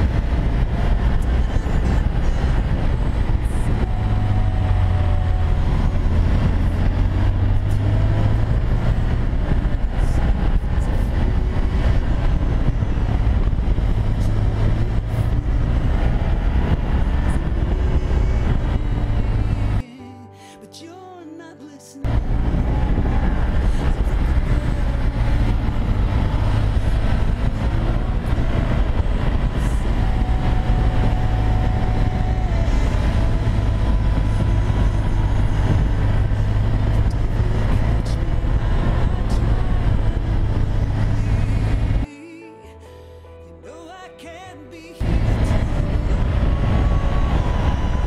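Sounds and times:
motorcycle engine running: 0:00.0 - 0:19.8, 0:22.1 - 0:42.1, 0:45.0 - 0:48.0
wind rush on microphone: 0:00.0 - 0:19.8, 0:22.0 - 0:42.1, 0:45.0 - 0:48.0
music: 0:17.2 - 0:48.0.

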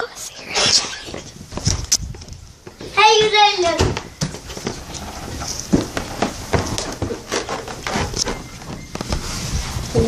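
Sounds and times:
phone microphone rubbing on clothing: 0:00.0 - 0:02.3, 0:04.4 - 0:06.8, 0:08.0 - 0:10.0.

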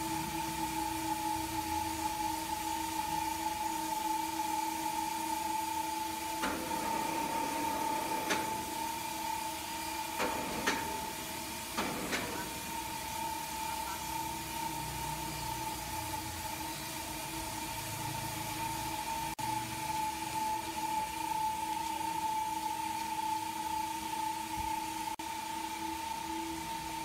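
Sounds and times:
electric hoist whine: 0:00.0 - 0:27.0
metallic clanks of cables: 0:06.4 - 0:09.0, 0:10.0 - 0:13.2.

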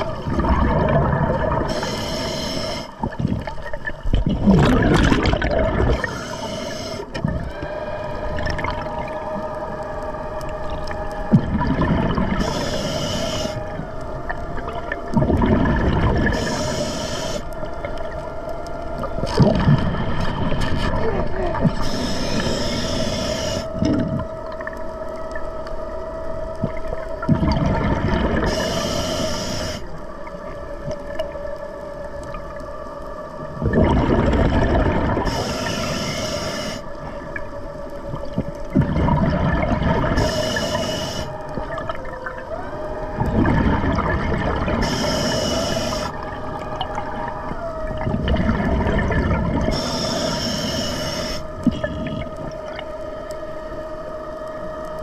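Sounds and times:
exhaled bubbles gushing: 0:00.0 - 0:01.9, 0:02.9 - 0:09.7, 0:10.5 - 0:12.7, 0:13.7 - 0:16.8, 0:19.0 - 0:22.5, 0:23.8 - 0:24.8, 0:26.6 - 0:28.8, 0:33.4 - 0:35.7, 0:38.1 - 0:40.7, 0:41.4 - 0:50.4, 0:51.6 - 0:52.9
underwater scooter humming: 0:00.0 - 0:55.0
diver breathing through regulator: 0:01.5 - 0:03.2, 0:04.6 - 0:07.3, 0:12.0 - 0:13.8, 0:16.2 - 0:17.6, 0:21.7 - 0:24.0, 0:28.3 - 0:29.9, 0:35.1 - 0:37.0, 0:40.0 - 0:41.6, 0:44.7 - 0:46.2, 0:49.7 - 0:52.0.

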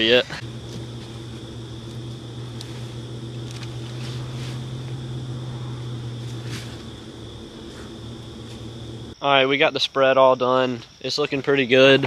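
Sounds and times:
vehicle engine running steadily: 0:00.0 - 0:09.2
faint insect trill: 0:00.0 - 0:12.0.

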